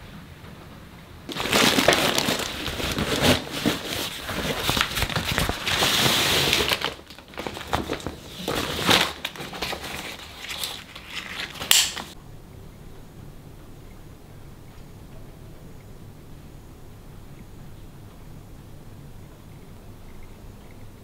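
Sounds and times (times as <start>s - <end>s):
fabric crinkling and rustling: 1.3s - 12.2s.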